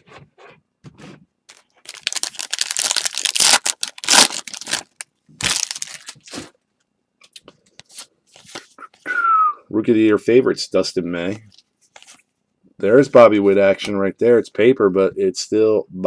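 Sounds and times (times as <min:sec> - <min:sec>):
foil wrapper crinkling: 0:01.5 - 0:06.4.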